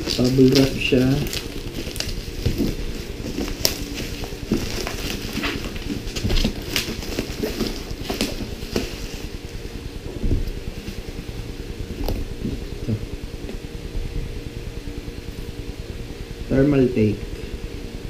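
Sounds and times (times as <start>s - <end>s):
bubble wrap crinkling: 0.0s - 9.6s
steady low hum: 0.0s - 18.0s.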